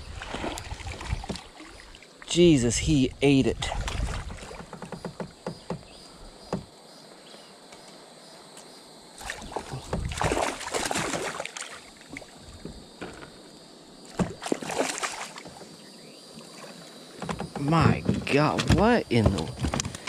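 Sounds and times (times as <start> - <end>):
fish thrashing water splashing: 9.2 - 12.0, 14.1 - 15.6.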